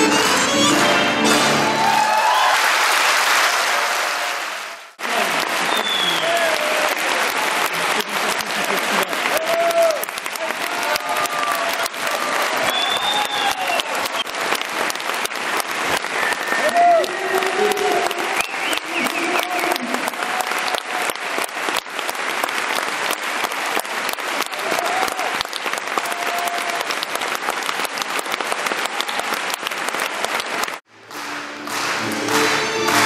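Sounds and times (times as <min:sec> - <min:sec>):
music: 0:00.0 - 0:01.9, 0:30.9 - 0:33.0
audience applauding: 0:00.0 - 0:33.0.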